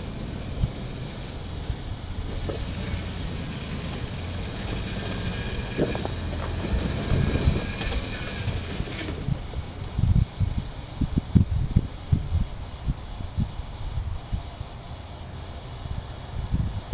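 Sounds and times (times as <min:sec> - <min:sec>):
engine idling: 0:00.0 - 0:16.9
vehicle knocks: 0:02.2 - 0:09.7.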